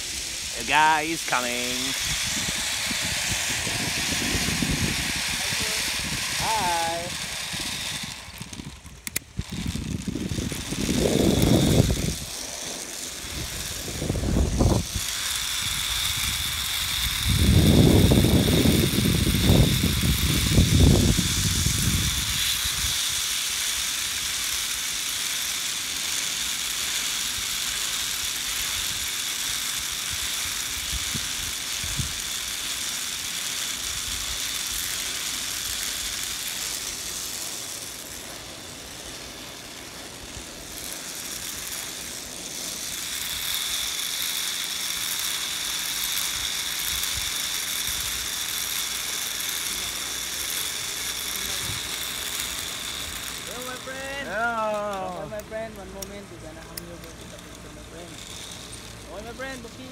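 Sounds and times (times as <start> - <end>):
zipline pulleys whirring on cable: 0.0 - 59.9
wind buffeting microphone: 1.9 - 12.4, 13.2 - 22.9.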